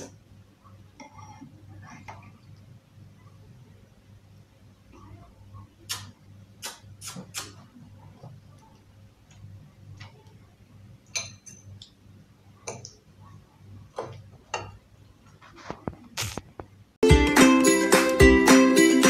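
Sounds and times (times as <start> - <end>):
faint low hum: 0.0 - 17.0
cutlery clinking on plates: 11.1 - 11.8.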